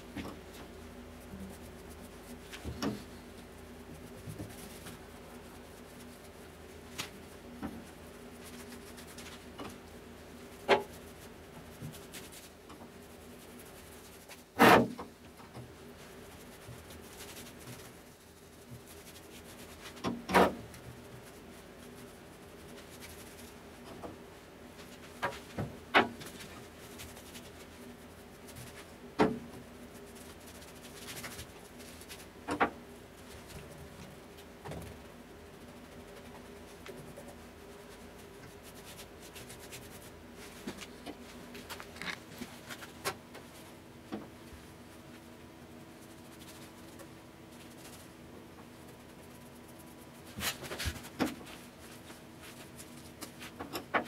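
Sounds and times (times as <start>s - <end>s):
faint steady hum: 0.0s - 54.0s
paintbrush rubbing on metal: 0.3s - 14.7s, 15.9s - 23.9s, 44.9s - 53.6s.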